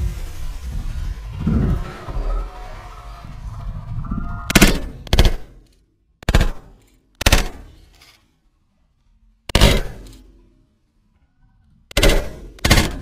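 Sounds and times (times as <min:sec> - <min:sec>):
shotgun shots: 0:04.5 - 0:05.6, 0:06.2 - 0:07.8, 0:09.5 - 0:10.2, 0:11.9 - 0:13.0.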